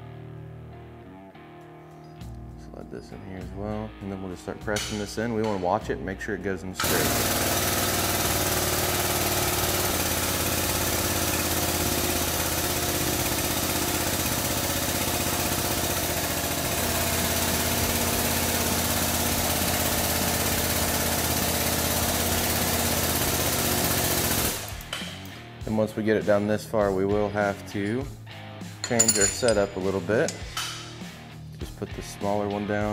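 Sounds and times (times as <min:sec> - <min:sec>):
hydraulic pump running: 0:06.8 - 0:25.0.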